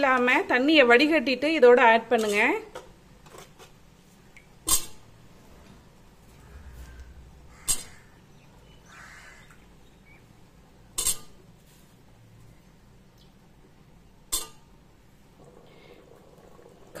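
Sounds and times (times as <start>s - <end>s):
crow cawing: 6.4s - 9.6s.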